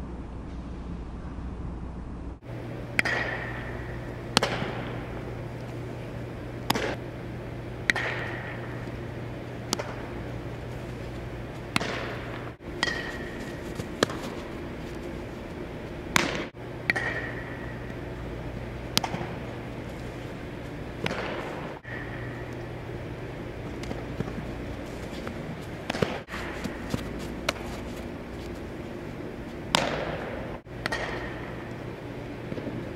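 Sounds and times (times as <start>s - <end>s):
steady low hum: 0.0s - 32.9s
baseballs smacking into gloves: 2.9s - 5.8s, 6.6s - 7.0s, 7.8s - 18.0s, 18.8s - 22.3s, 23.5s - 31.8s.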